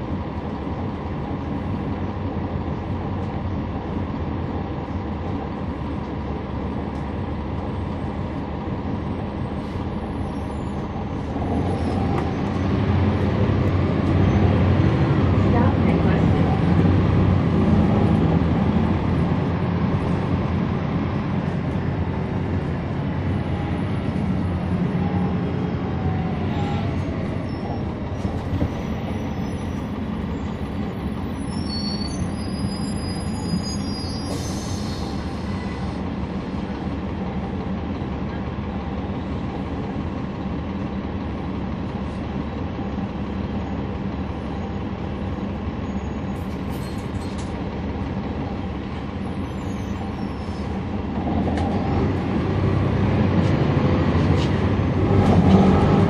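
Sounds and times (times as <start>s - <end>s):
bus diesel engine rumble: 0.0s - 56.0s
road noise: 0.0s - 56.0s
brief high squeal: 26.5s - 30.0s, 31.2s - 35.9s, 45.8s - 47.4s, 49.4s - 50.8s.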